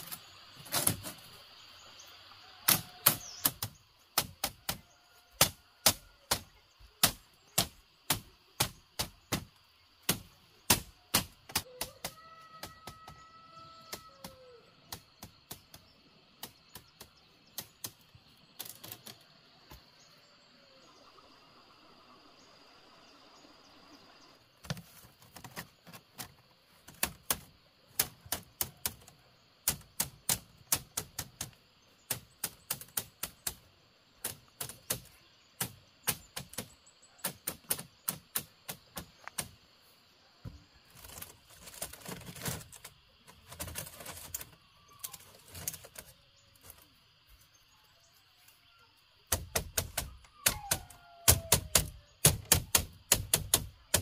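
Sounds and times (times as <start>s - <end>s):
bamboo strips scraping and rustling: 0.0s - 1.4s, 17.0s - 19.3s, 24.6s - 29.1s, 40.8s - 47.0s
machete striking bamboo: 2.7s - 4.8s, 5.4s - 13.1s, 49.3s - 54.0s.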